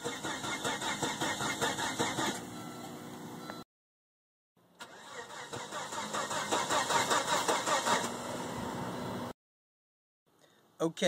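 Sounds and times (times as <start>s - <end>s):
car starter clicking: 0.0s - 2.4s, 4.8s - 8.2s
car engine cranking: 0.0s - 2.5s, 4.8s - 8.4s.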